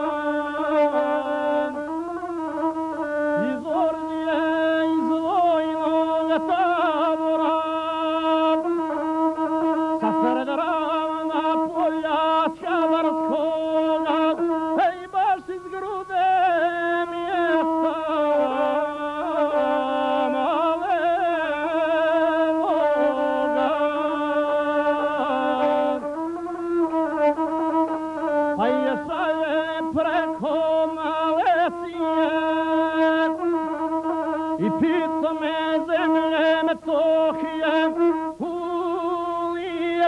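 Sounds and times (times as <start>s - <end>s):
bowed single-string fiddle: 0.0s - 40.0s.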